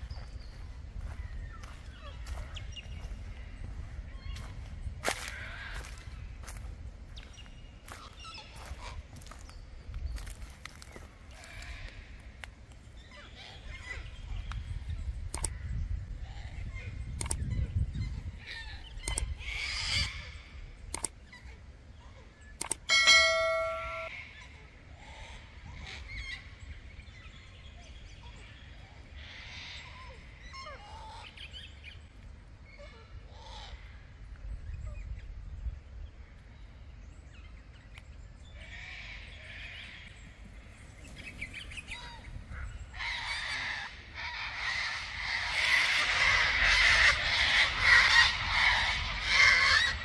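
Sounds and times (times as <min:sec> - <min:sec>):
cockatoos screeching: 0:22.9 - 0:24.2.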